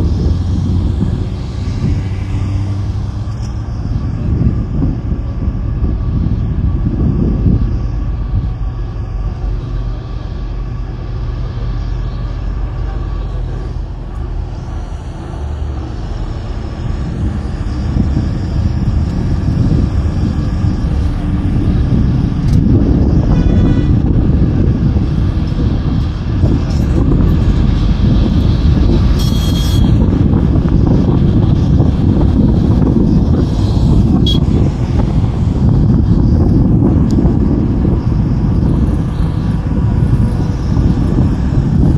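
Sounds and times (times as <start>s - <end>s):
bus engine and road rumble: 0.0s - 41.9s
wind through open window: 0.0s - 41.9s.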